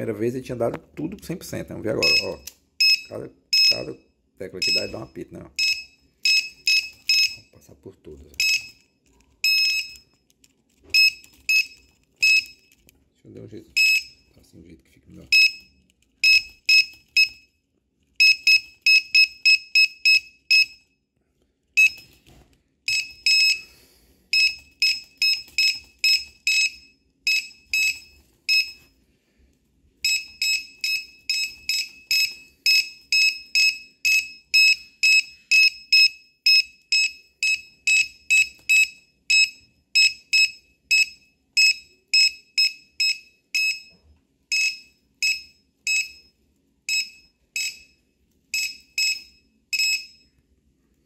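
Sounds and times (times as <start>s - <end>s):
short high-pitched beeps: 2.0s - 7.5s, 11.0s - 12.7s.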